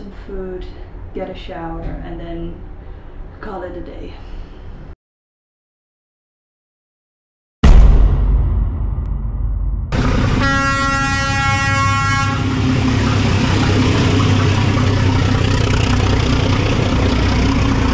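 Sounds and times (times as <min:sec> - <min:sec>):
road traffic engines: 0:10.0 - 0:17.9
vehicle horn: 0:10.4 - 0:12.6.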